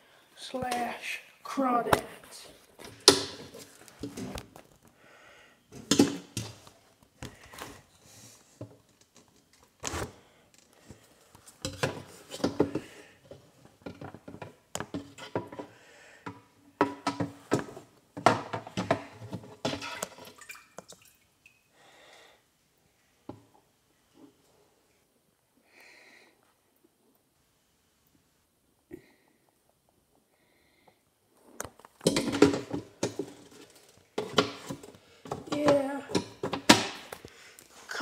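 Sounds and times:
handling knocks and rustling: 1.8s - 4.9s, 31.4s - 38.0s.

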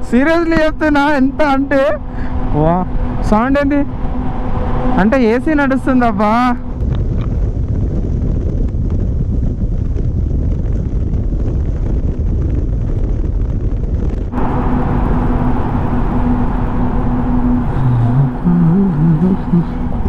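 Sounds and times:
steady hum: 0.0s - 7.2s, 13.7s - 20.0s
motorcycle engine rumble: 0.0s - 20.0s
tunnel ventilation fans: 0.0s - 20.0s.

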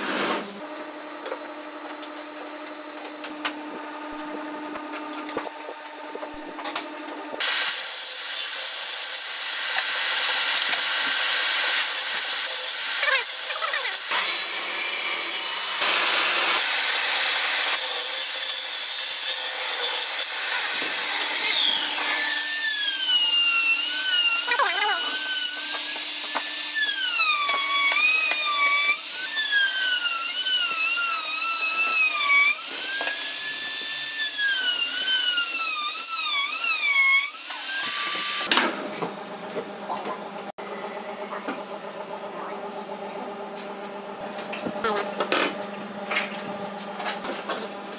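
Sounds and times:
table saw cutting wood: 0.0s - 40.6s
power tool motor whine: 0.9s - 38.6s.

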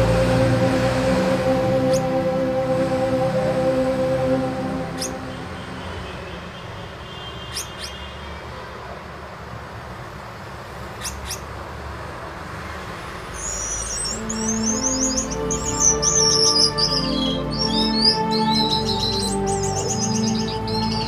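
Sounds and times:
finches calling and twittering: 0.0s - 5.5s, 7.4s - 8.1s, 11.0s - 11.5s, 13.3s - 21.0s.

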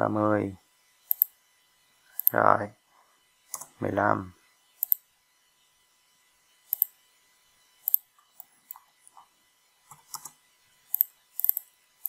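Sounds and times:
computer mouse clicking: 1.1s - 1.3s, 2.2s - 2.4s, 3.5s - 3.7s, 4.8s - 5.0s, 6.7s - 6.9s, 7.8s - 9.2s, 9.9s - 11.7s.

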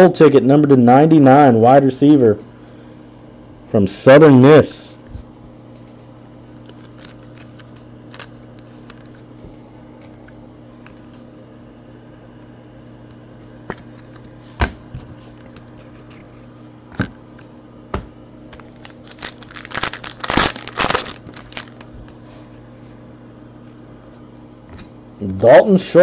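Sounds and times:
foil pack crinkling: 6.5s - 9.2s, 18.5s - 22.4s.

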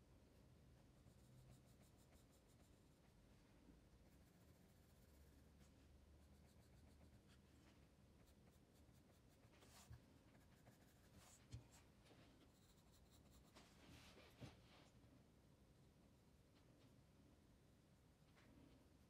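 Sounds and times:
pencil scratching on paper: 1.0s - 3.2s, 4.0s - 7.5s, 8.2s - 11.8s, 12.4s - 13.6s.

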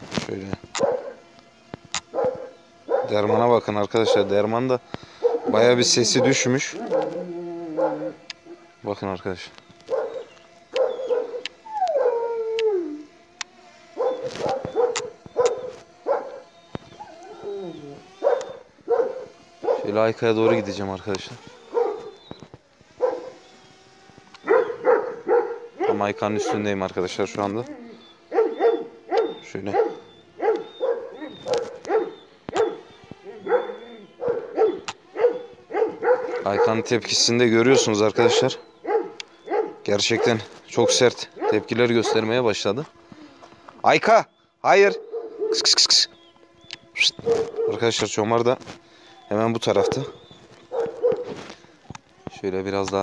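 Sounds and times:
dog barking: 0.8s - 1.2s, 2.1s - 3.2s, 4.0s - 4.4s, 5.2s - 8.2s, 9.9s - 12.2s, 13.9s - 16.5s, 18.2s - 20.7s, 21.6s - 22.2s, 23.0s - 23.4s, 24.4s - 26.6s, 28.3s - 36.9s, 37.7s - 42.4s, 44.8s - 45.8s, 47.2s - 47.9s, 49.7s - 51.4s
dog howling: 2.1s - 3.2s, 4.0s - 4.4s, 5.2s - 8.7s, 9.9s - 13.2s, 14.0s - 20.8s, 21.5s - 22.3s, 23.0s - 23.4s, 24.4s - 26.7s, 27.5s - 36.9s, 37.6s - 42.4s, 49.2s - 51.4s.

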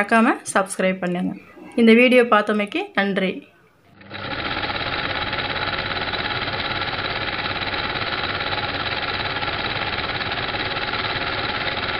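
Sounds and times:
small machine rattling: 3.9s - 11.9s.

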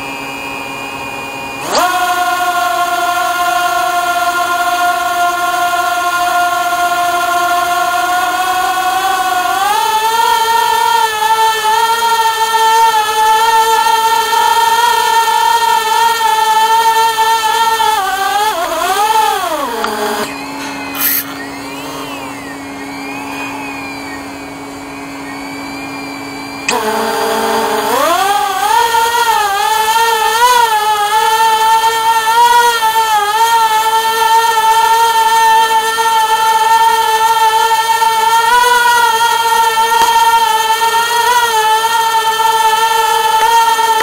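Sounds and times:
drone propellers whining: 0.0s - 44.0s
steady low hum: 14.9s - 30.3s.

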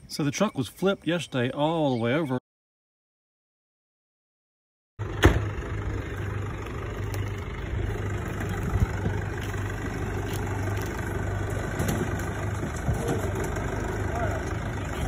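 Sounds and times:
tractor engine idling: 5.0s - 15.0s.

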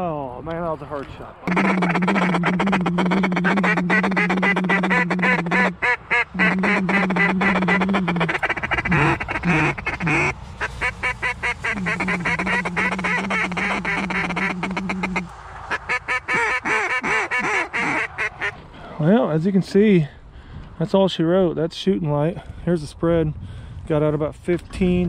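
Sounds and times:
low drone: 1.5s - 15.7s
duck quacking: 1.5s - 18.6s.

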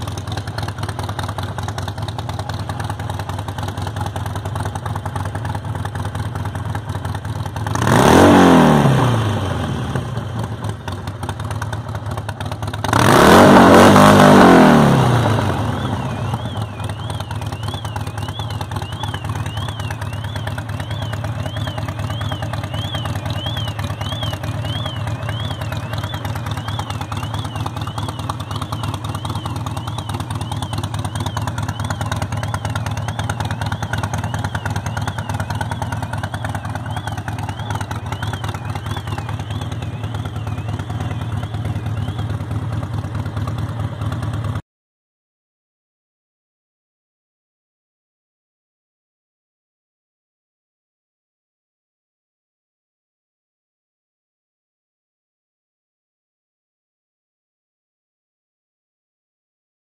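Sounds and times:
motorcycle engine idling and revving: 0.0s - 44.6s.

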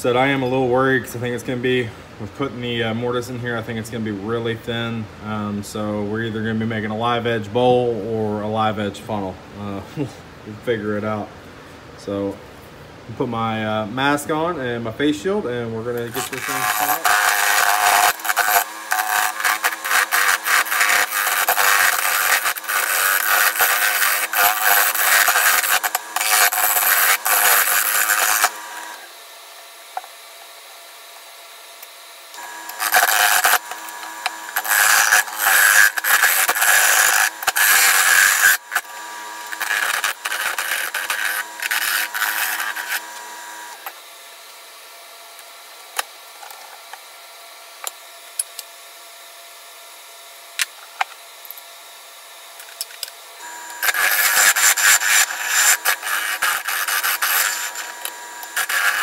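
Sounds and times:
turning tool scraping wood: 15.9s - 29.2s, 32.4s - 44.0s, 53.4s - 59.0s
lathe motor hum: 15.9s - 49.3s, 51.0s - 59.0s.

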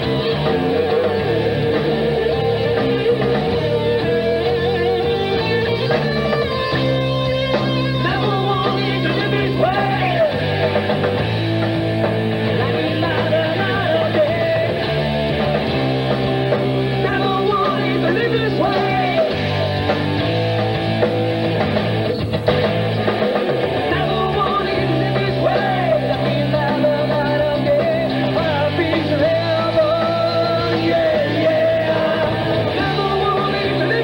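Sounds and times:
person singing: 0.0s - 6.8s, 7.8s - 10.8s, 12.4s - 15.0s, 16.9s - 19.7s, 23.8s - 34.0s
rock band playing live: 0.0s - 34.0s.

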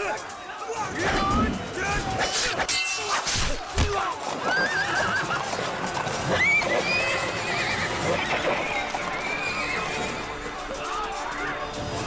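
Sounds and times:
background music: 0.0s - 12.0s
swords clashing and swishing: 1.0s - 4.2s
clip-clop of hooves: 3.6s - 11.5s
horses whinnying: 4.0s - 11.7s.

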